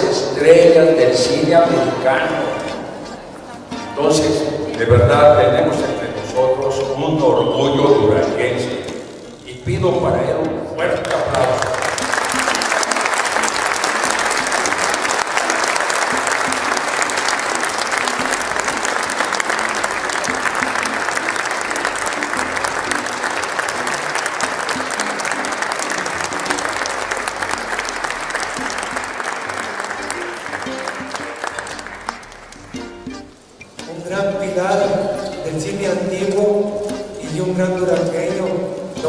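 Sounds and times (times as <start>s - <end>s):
music playing: 0.0s - 39.0s
audience applauding: 11.0s - 33.3s.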